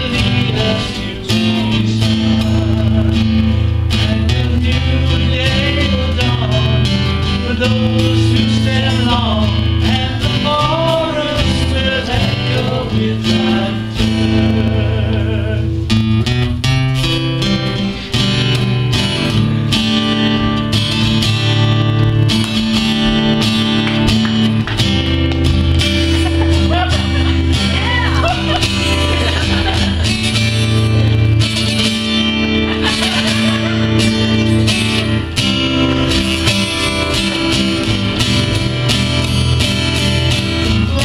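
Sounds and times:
singing: 0.0s - 3.2s, 4.0s - 15.7s
acoustic guitars strummed: 0.0s - 41.0s.

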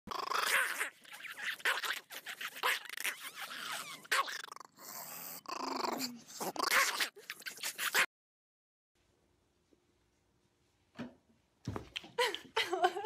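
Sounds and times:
small dog growling: 0.1s - 2.0s, 2.6s - 8.1s.

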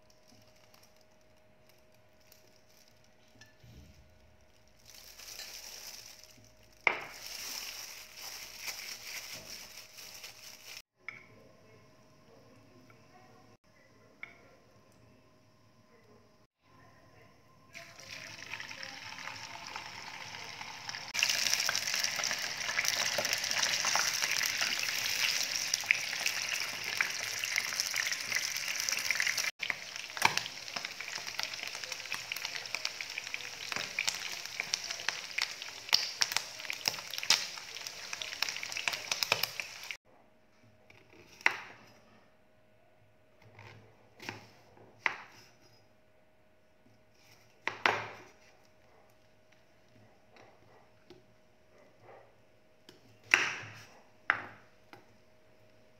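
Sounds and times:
pork sizzling in hot oil: 17.8s - 40.0s.

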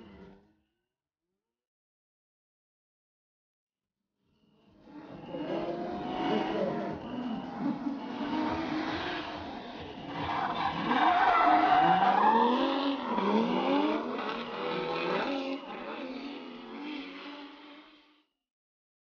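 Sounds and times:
tyres skidding and squealing: 4.4s - 18.2s
car engines revving: 4.6s - 18.2s.

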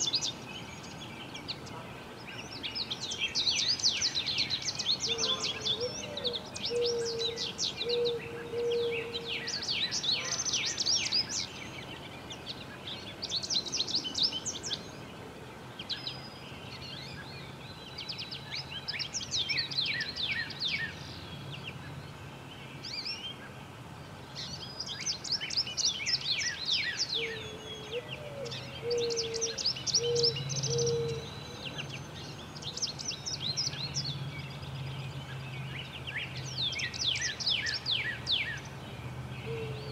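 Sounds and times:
songbirds chirping and trilling: 0.0s - 39.9s
low hooting bird notes: 5.1s - 9.6s.

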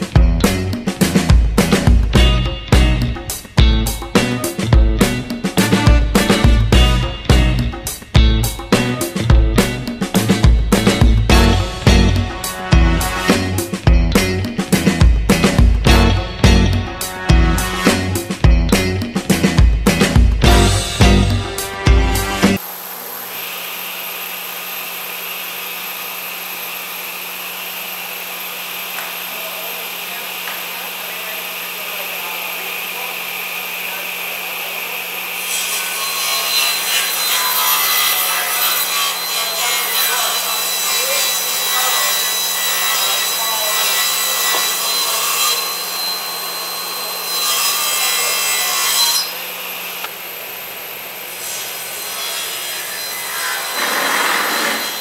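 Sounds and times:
saw cutting through wood: 4.1s - 8.0s, 8.7s - 13.8s, 14.6s - 18.4s, 19.1s - 55.0s
table saw running: 19.0s - 55.0s.

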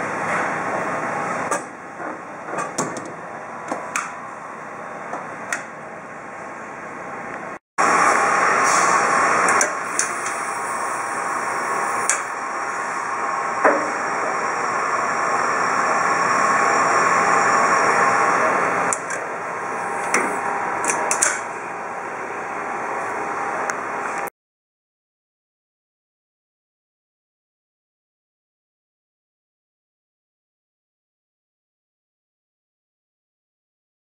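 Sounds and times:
machine humming: 3.1s - 24.3s.

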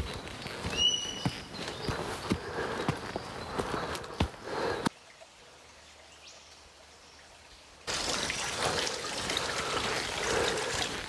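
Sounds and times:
footsteps on metal grating: 0.0s - 4.4s.

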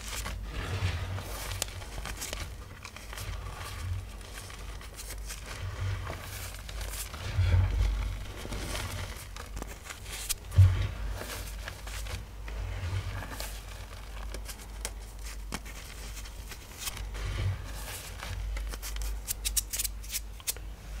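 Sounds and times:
chalk crunching and crumbling: 0.0s - 20.6s.

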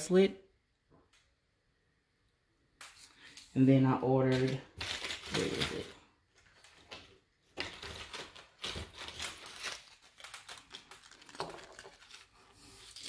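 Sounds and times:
packaging rustling and crinkling: 4.3s - 13.0s.

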